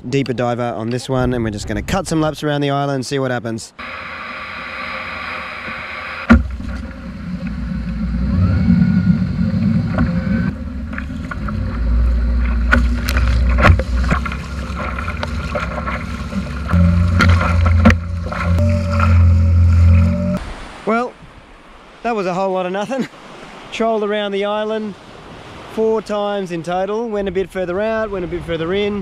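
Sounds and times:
small outboard motor humming: 0:03.8 - 0:20.4
water rushing past hull: 0:03.8 - 0:26.6
sharp knocks: 0:06.2 - 0:07.6, 0:12.4 - 0:20.2.

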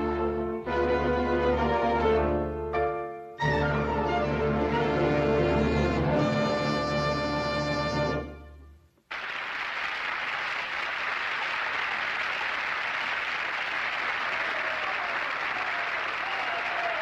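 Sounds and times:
audience applause: 0:09.1 - 0:17.0.

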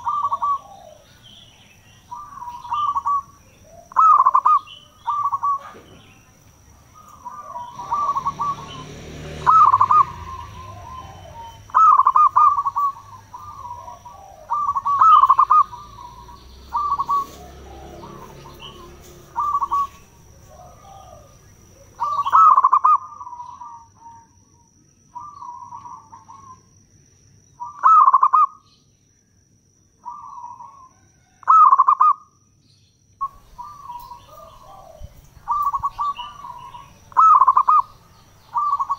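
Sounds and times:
dove cooing: 0:00.0 - 0:24.4, 0:25.2 - 0:26.7, 0:27.6 - 0:28.6, 0:30.0 - 0:32.3, 0:33.2 - 0:38.9.

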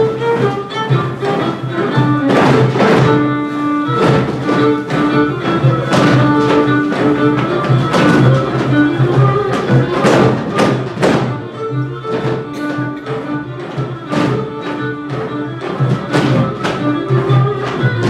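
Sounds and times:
dancers stamping feet: 0:00.0 - 0:18.0
folk dance music with fiddles: 0:00.0 - 0:18.0.

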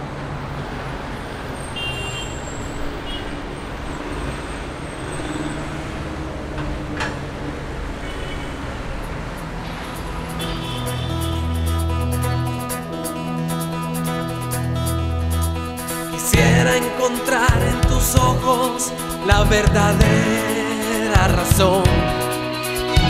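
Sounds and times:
traffic engines humming: 0:00.0 - 0:23.0
music: 0:09.7 - 0:23.0.

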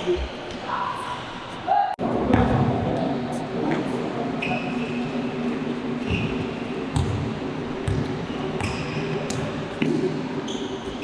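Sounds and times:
basketball bouncing: 0:06.9 - 0:10.0
sneaker squeaks on court: 0:07.9 - 0:09.4, 0:10.4 - 0:11.0.

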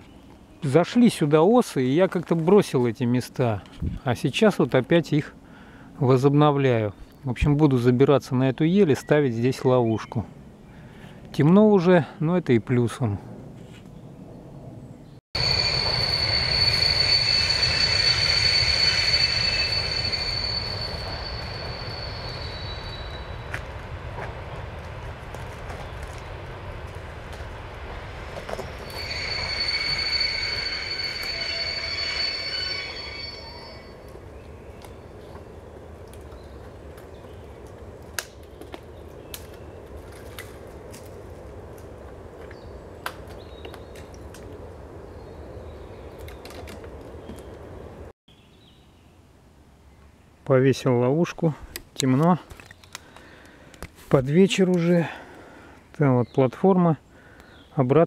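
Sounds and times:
high steady whine: 0:15.4 - 0:23.7, 0:28.3 - 0:34.2
electric train rumbling past: 0:15.4 - 0:48.1
dry twigs snapping: 0:52.5 - 0:54.0.

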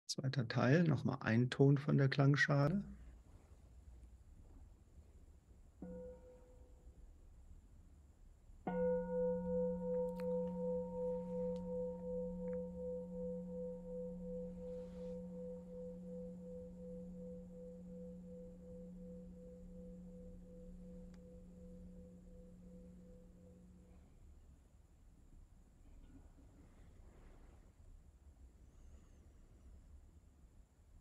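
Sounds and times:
singing bowl struck and ringing: 0:05.8 - 0:06.6, 0:08.7 - 0:24.0.

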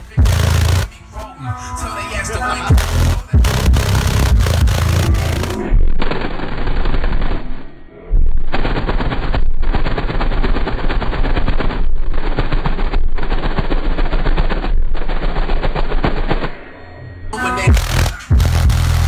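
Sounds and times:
heavy bass: 0:00.0 - 0:19.0
plastic flapping and crackling: 0:08.5 - 0:16.5.

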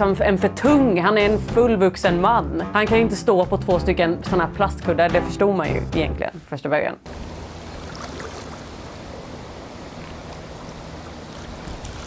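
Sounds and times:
lake water washing: 0:07.1 - 0:12.0
wind: 0:07.1 - 0:12.0.

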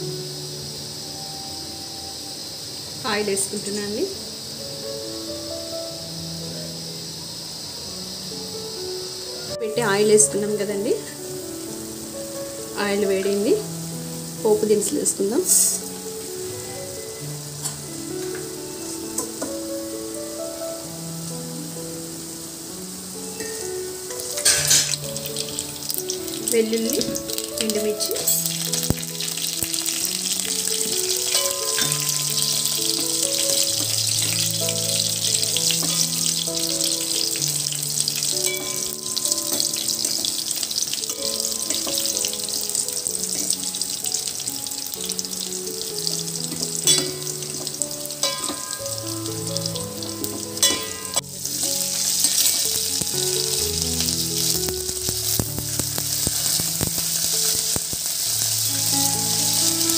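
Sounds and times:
background music with simple melody: 0:00.0 - 0:59.9
spices sizzling in hot oil: 0:00.0 - 0:59.9.

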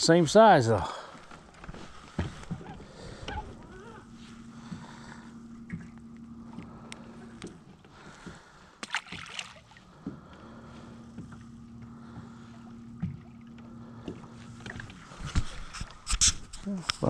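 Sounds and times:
steady low hum: 0:00.0 - 0:17.0
water slapping against hull: 0:07.4 - 0:10.2, 0:11.2 - 0:16.5.

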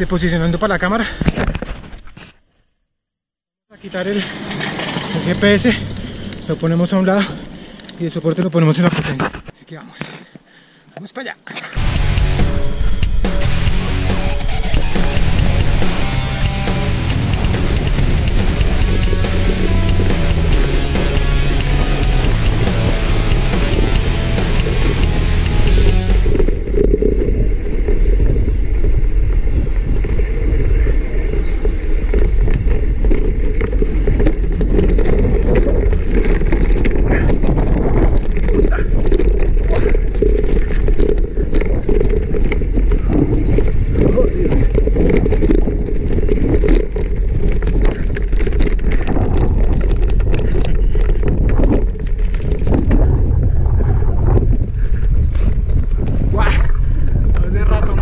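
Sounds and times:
bike tyres rumbling on dirt: 0:03.8 - 0:09.5, 0:11.8 - 0:58.0
wind on microphone: 0:11.8 - 0:58.0
knocks from rough ground: 0:32.0 - 0:54.7.

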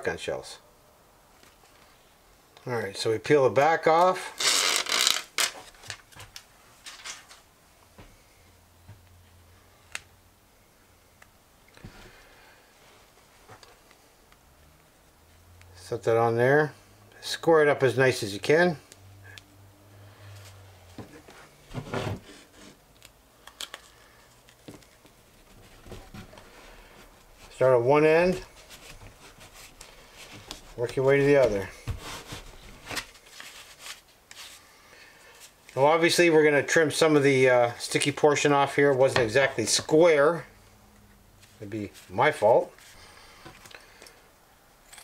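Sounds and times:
plastic backing peeled off: 0:04.0 - 0:07.4
faint plastic rustles: 0:04.3 - 0:07.5, 0:28.3 - 0:35.8
fabric rubbing: 0:28.3 - 0:34.6.

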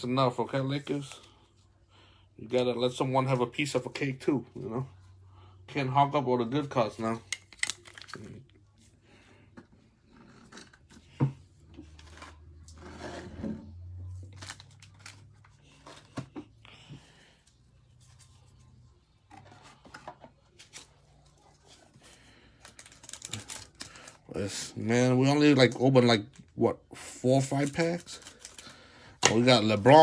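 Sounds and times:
trading cards being handled: 0:06.9 - 0:08.9
plastic wrapper rustling: 0:07.5 - 0:08.5, 0:14.2 - 0:16.1, 0:22.6 - 0:24.7, 0:27.4 - 0:30.0.

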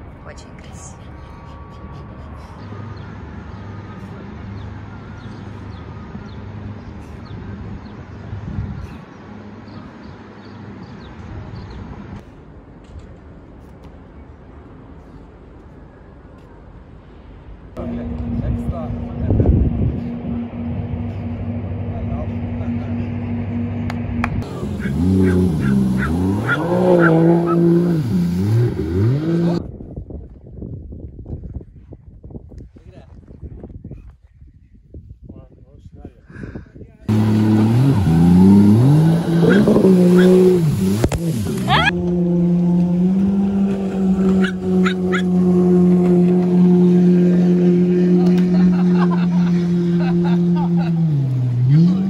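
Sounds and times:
low traffic rumble: 0:00.0 - 0:30.2, 0:35.0 - 0:52.0
jet ski engine revving: 0:17.8 - 0:29.6, 0:37.1 - 0:52.0.

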